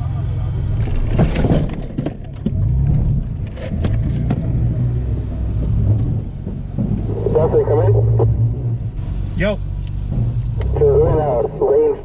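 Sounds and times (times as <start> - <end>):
truck engine running: 0.0 - 12.0
knocks and clunks over rocks: 0.7 - 4.7, 5.4 - 7.5.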